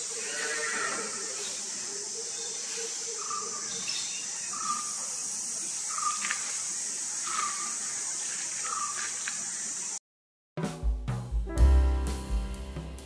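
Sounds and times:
high-pitched insect chorus: 0:00.0 - 0:10.0.

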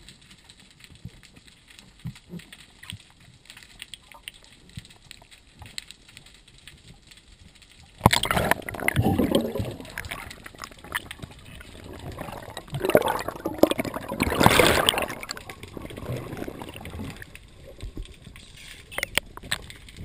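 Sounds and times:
underwater air bubbles gurgling: 0:07.9 - 0:20.0.

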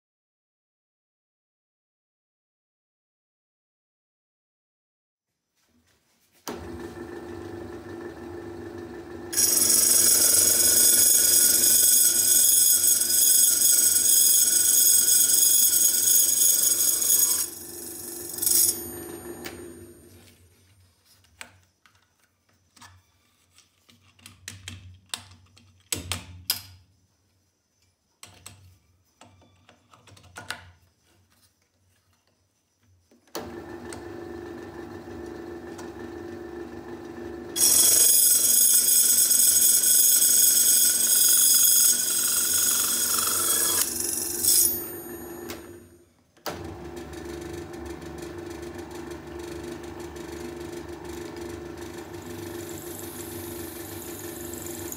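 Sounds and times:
drill press motor running: 0:06.5 - 0:20.2, 0:33.4 - 0:54.9
saw blade ringing whine on brass: 0:09.3 - 0:20.1, 0:37.6 - 0:46.0
clicks and knocks of handling: 0:21.2 - 0:26.8.

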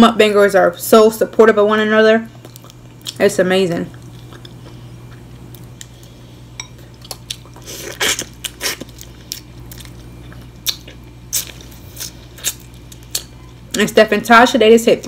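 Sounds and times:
air conditioner hum: 0:00.0 - 0:15.0.

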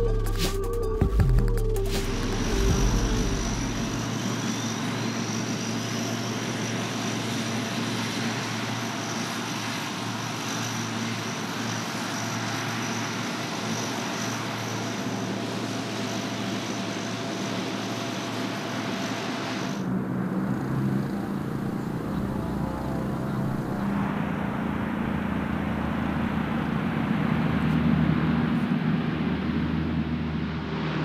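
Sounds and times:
faint rising whine: 0:00.0 - 0:05.7, 0:19.2 - 0:28.4
turboprop engines running: 0:00.0 - 0:31.0.

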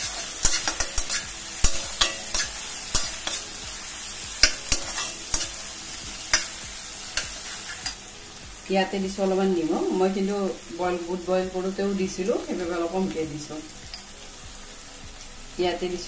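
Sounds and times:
food sizzling in oil: 0:00.0 - 0:16.0.

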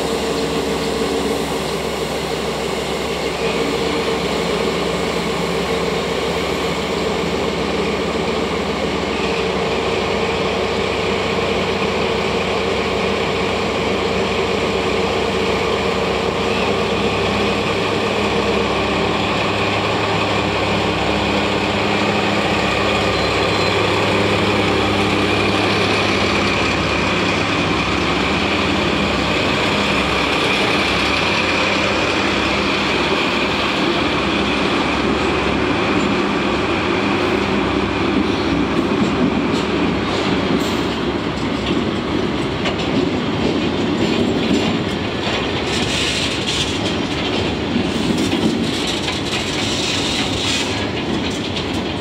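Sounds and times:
diesel locomotive engine droning: 0:00.0 - 0:52.0
hopper cars rolling past: 0:00.0 - 0:52.0.

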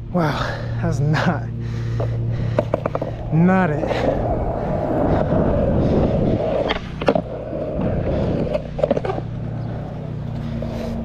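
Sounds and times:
skateboard wheels rolling on asphalt: 0:00.0 - 0:11.0
skateboard clacks: 0:02.0 - 0:03.3, 0:06.3 - 0:11.0.

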